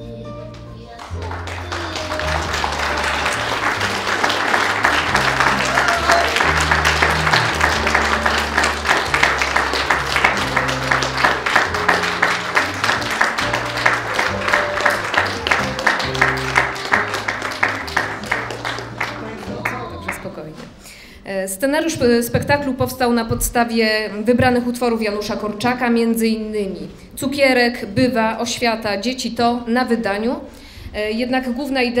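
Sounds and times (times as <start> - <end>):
rhythmic clapping: 0.4 - 20.4
audience applauding: 1.0 - 20.4.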